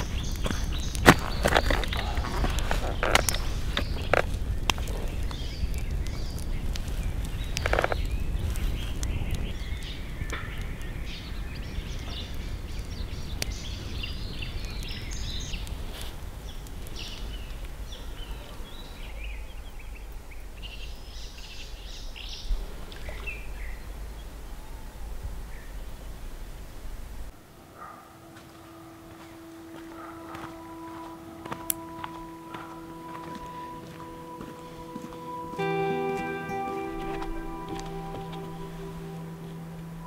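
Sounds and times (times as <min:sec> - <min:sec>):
small birds chirping: 0:00.0 - 0:40.0
steady low rumble: 0:37.1 - 0:40.0.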